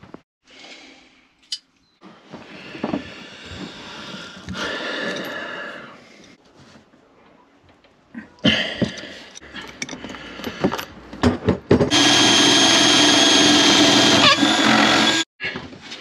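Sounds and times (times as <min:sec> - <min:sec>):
cordless drill running: 0:11.9 - 0:15.3.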